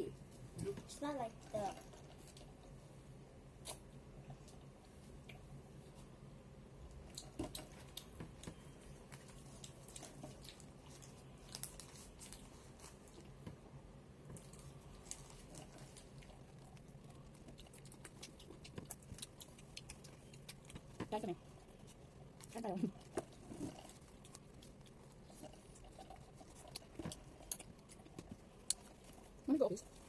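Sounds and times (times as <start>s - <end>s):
faint steady hum: 0.0s - 30.0s
chewing and biting burger: 14.4s - 29.4s.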